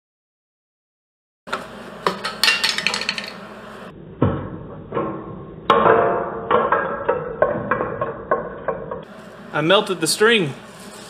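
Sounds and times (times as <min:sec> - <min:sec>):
sharp metallic knocks: 0:04.2 - 0:09.1.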